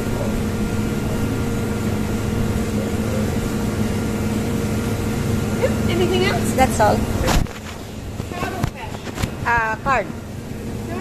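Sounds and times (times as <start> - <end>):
steady low machine hum: 0.0 - 11.0.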